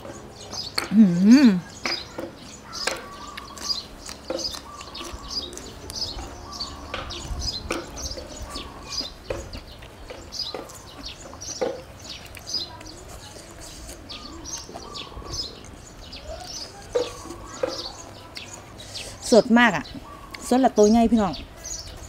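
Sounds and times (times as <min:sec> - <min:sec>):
small birds chirping: 0:00.0 - 0:22.0
eating clicks and crunches: 0:01.6 - 0:19.3.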